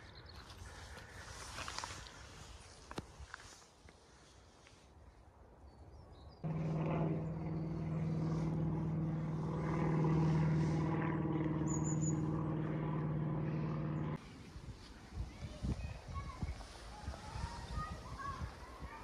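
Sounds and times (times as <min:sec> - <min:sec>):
low engine drone: 0:06.4 - 0:14.2.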